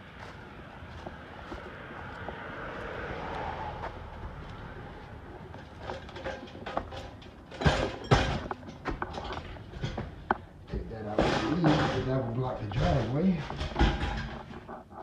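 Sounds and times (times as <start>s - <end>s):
knocks and rattles of junk: 5.3s - 15.0s.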